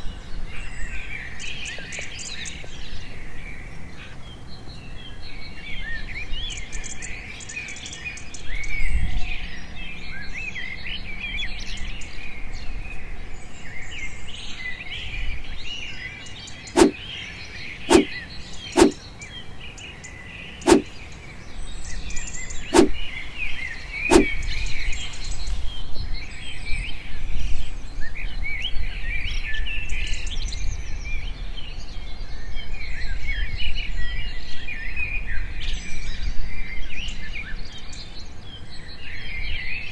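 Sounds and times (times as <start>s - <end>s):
small birds chirping: 9.9s - 30.9s.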